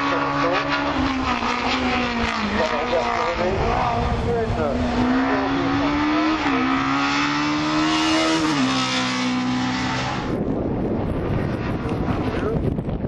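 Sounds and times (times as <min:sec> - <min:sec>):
race car engine at full throttle: 0:00.0 - 0:13.0
wind-like rush: 0:03.4 - 0:13.0.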